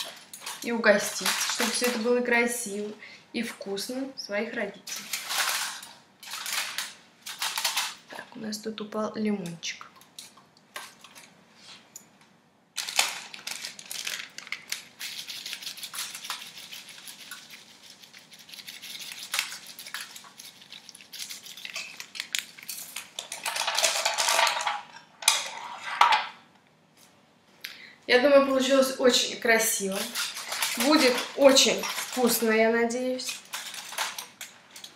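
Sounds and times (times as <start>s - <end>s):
aluminium foil crinkling: 0.0s - 2.3s, 4.8s - 8.0s, 12.8s - 24.8s, 29.5s - 34.9s.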